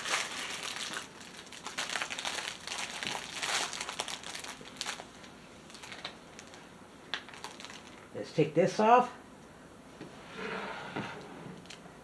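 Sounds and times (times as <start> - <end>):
plastic packaging crinkling: 0.0 - 8.1.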